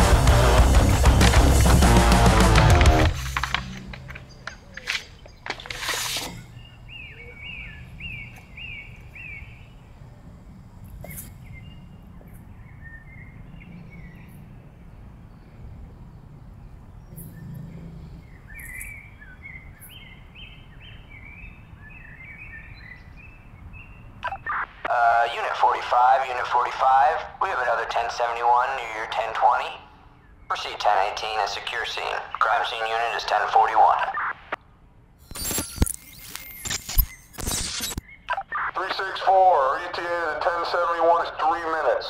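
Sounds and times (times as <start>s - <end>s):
birds chirping: 0.1s - 42.0s
sharp rustle: 4.5s - 6.5s.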